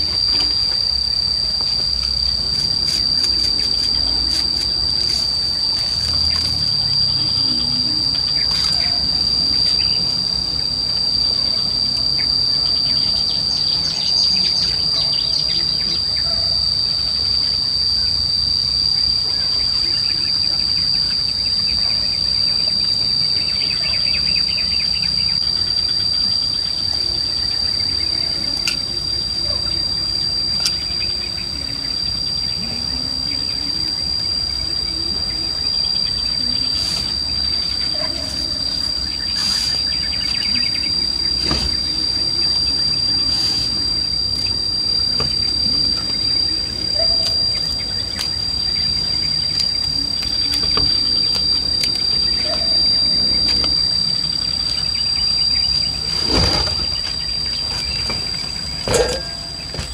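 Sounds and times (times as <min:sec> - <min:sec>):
high-pitched insect drone: 0:00.0 - 0:59.9.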